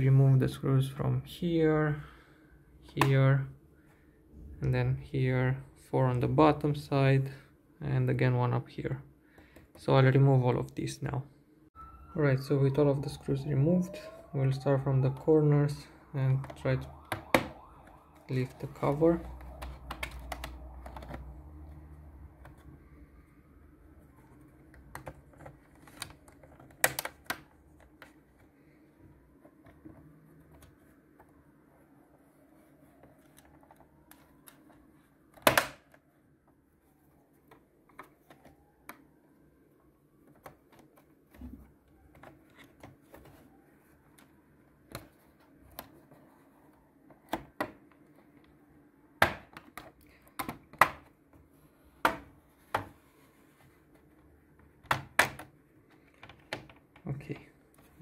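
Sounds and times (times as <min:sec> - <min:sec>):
plastic clips snapping loose: 0:24.8 - 0:28.1.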